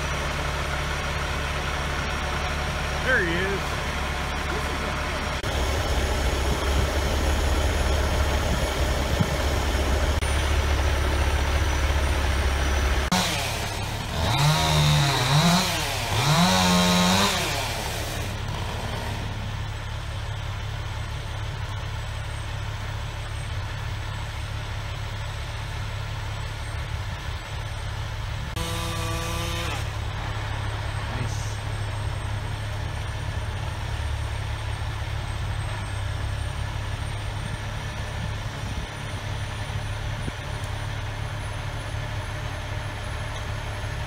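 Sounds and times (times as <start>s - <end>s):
truck engine running: 0.0s - 44.0s
chainsaw cutting log: 13.0s - 19.5s, 28.5s - 30.3s.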